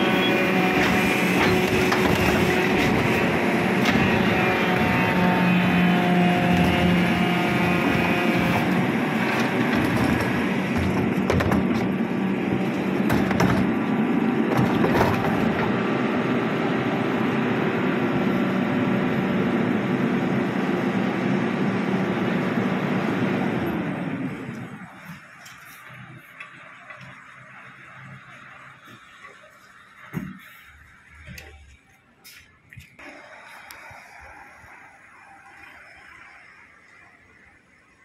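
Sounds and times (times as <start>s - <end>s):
garbage truck compactor humming: 0.0s - 32.3s
rubbish cracking and knocking: 0.7s - 5.0s, 6.4s - 13.9s, 14.5s - 15.8s.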